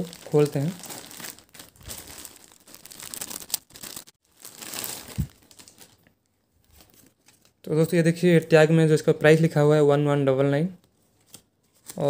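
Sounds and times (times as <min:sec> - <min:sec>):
plastic bag crinkling: 0:00.0 - 0:07.5.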